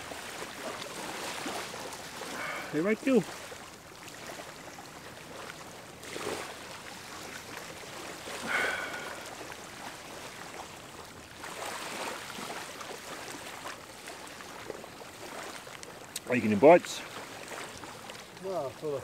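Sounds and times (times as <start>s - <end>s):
small waves washing on beach: 0.0s - 19.0s.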